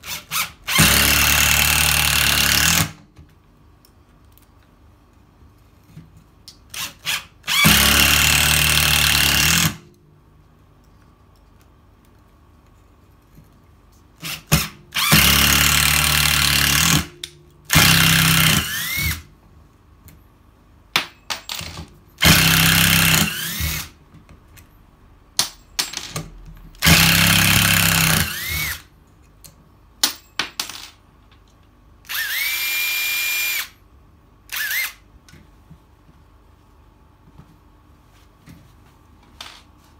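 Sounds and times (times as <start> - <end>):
impact driver hammering: 22.2 - 23.9, 26.8 - 28.7.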